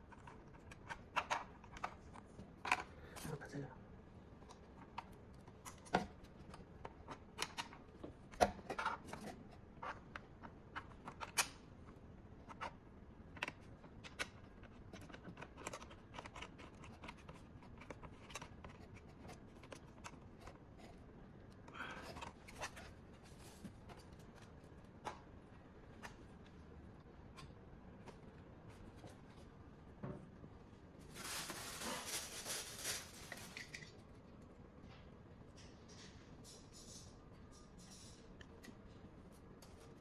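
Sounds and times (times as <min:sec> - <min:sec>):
plastic packaging rustle: 0:31.0 - 0:33.9.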